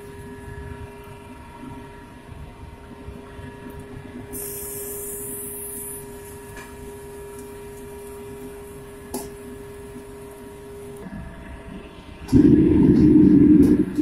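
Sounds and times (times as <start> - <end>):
rice sizzling in a wok: 4.3 - 10.9.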